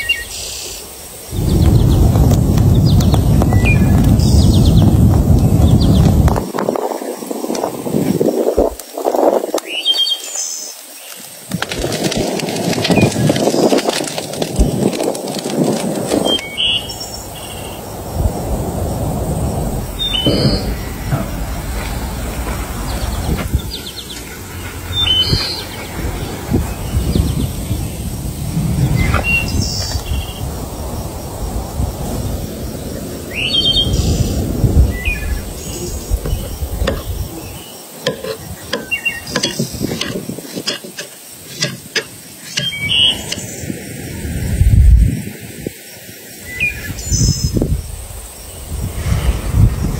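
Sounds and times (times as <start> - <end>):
birds chirping: 0.0 - 7.6, 16.2 - 18.2, 18.8 - 31.4, 32.1 - 44.3
sharp clicks and knocks: 36.2 - 37.2, 38.0 - 43.4.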